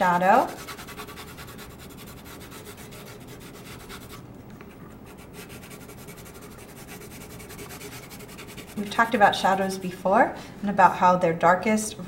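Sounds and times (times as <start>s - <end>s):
pencil scratching on paper: 0.1s - 9.4s.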